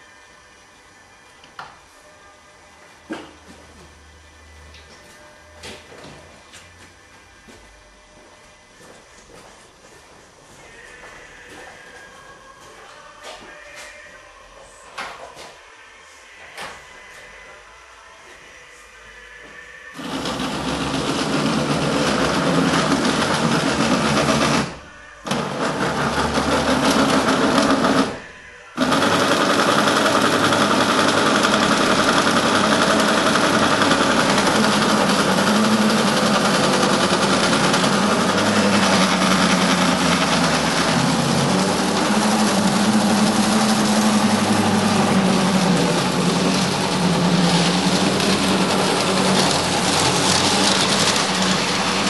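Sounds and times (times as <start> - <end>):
model tram motor whirring: 20.0 - 52.0
wheels rumbling on rails: 32.3 - 52.0.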